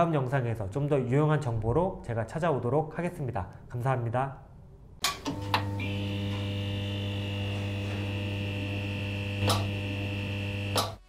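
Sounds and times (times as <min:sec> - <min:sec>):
electrical hum with high tones: 0:05.0 - 0:11.0.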